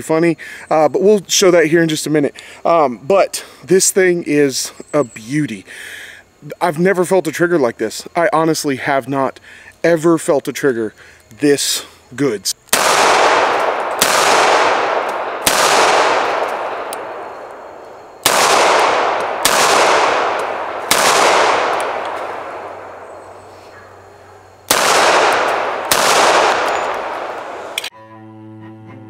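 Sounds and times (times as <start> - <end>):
pistol shots with echo: 12.7 - 23.8, 24.7 - 27.9.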